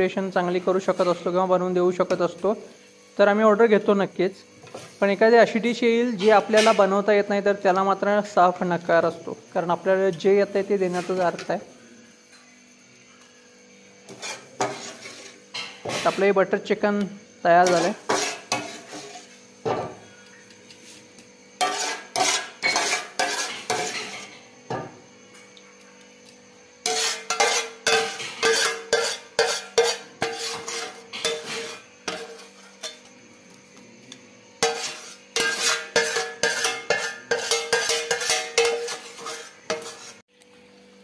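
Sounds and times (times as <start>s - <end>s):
steel ladle clinking on pan: 26.9s - 33.0s, 34.6s - 39.9s.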